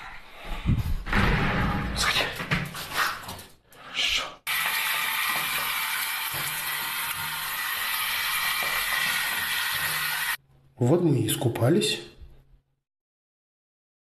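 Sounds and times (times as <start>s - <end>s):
shower spray pouring water: 4.5s - 10.4s.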